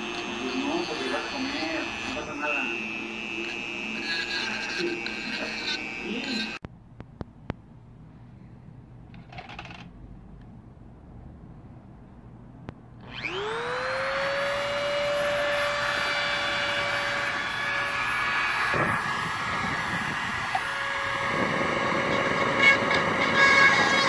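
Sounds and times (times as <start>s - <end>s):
bit grinding against metal: 0.0s - 6.6s
rotary tool motor whining: 0.0s - 6.6s, 13.0s - 24.0s.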